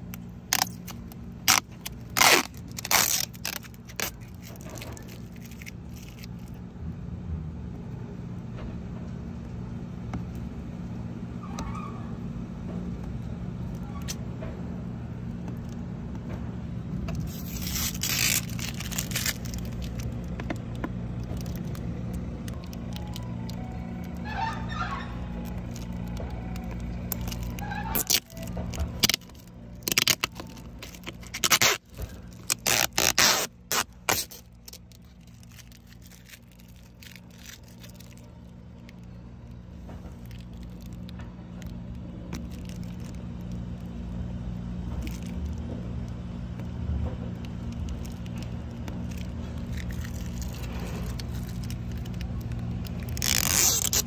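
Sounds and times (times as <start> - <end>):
plastic film peeling and crackling: 0.0 - 6.7, 17.1 - 54.0
steady low hum: 0.0 - 54.0.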